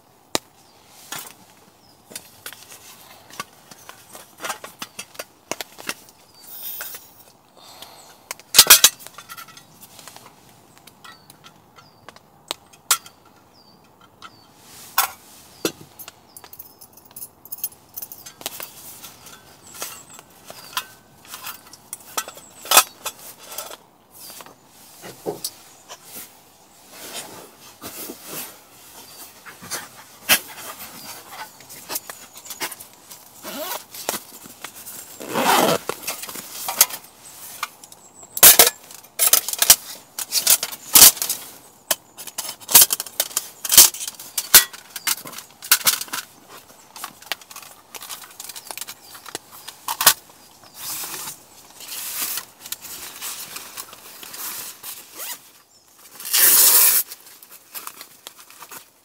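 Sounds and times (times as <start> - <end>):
rustling: 14.4 - 59.0.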